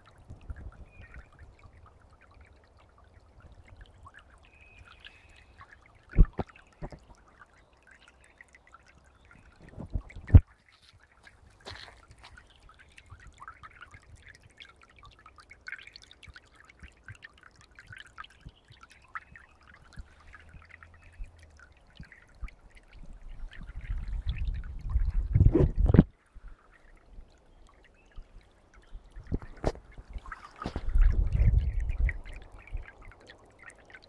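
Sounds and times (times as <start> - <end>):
stream trickling and gurgling: 0.0 - 34.0
low rumble on microphone: 9.4 - 10.4, 19.9 - 27.3, 28.9 - 33.2.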